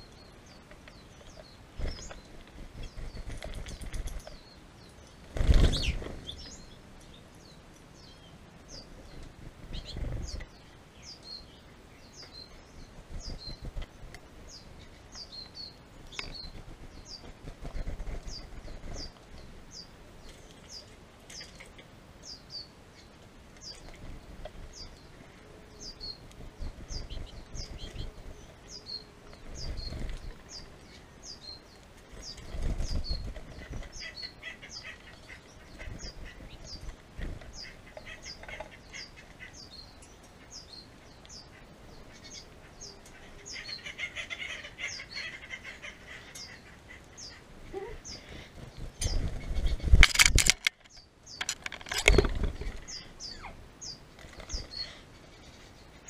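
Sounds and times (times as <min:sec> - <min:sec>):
bird chirping: 0:00.0 - 0:56.0
birds fluttering wings: 0:00.7 - 0:04.4, 0:05.2 - 0:06.5, 0:08.9 - 0:10.6, 0:12.8 - 0:15.1, 0:16.0 - 0:21.8, 0:23.7 - 0:25.2, 0:26.0 - 0:28.4, 0:29.2 - 0:31.0, 0:31.8 - 0:39.4, 0:47.5 - 0:53.2, 0:54.0 - 0:55.0.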